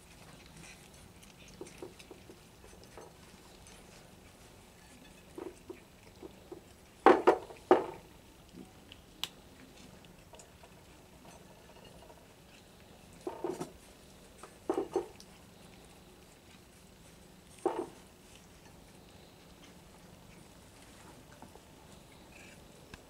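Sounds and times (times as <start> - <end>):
cats crunching kibble: 0.0 - 23.0
kibble clattering on plate: 14.5 - 15.2, 17.6 - 18.0.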